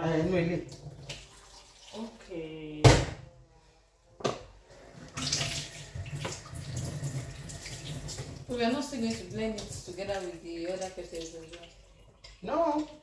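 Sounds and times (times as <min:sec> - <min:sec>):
water pouring into blender jar: 0:05.1 - 0:08.6.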